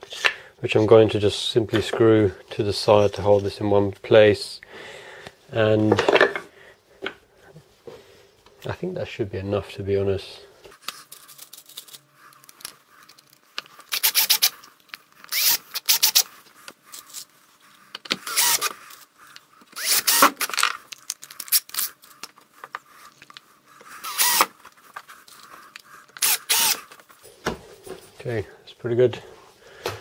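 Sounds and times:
power screwdriver driving screws: 0:13.9 - 0:14.6, 0:15.3 - 0:16.3, 0:18.2 - 0:18.8, 0:19.8 - 0:20.6, 0:24.0 - 0:24.5, 0:26.2 - 0:26.9.

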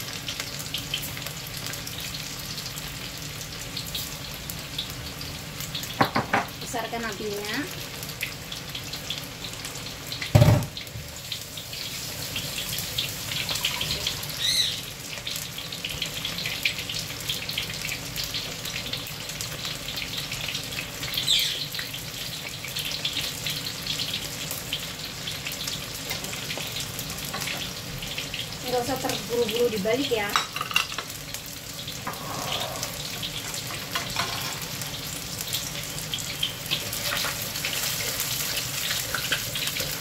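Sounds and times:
meat deep-frying in hot oil: 0:00.0 - 0:40.0
thump: 0:10.3 - 0:10.7.

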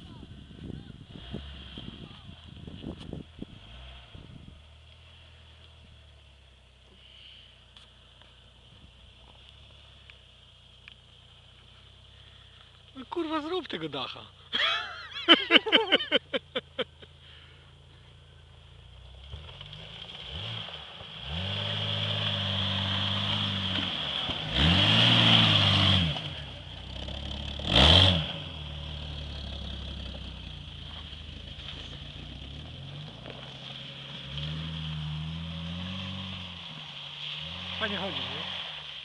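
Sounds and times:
engine revving: 0:03.4 - 0:05.6, 0:19.0 - 0:39.0.

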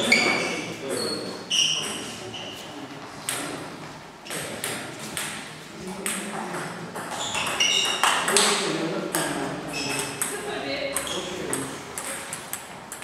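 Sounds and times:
table tennis ball bouncing: 0:03.2 - 0:03.6, 0:04.3 - 0:13.0.

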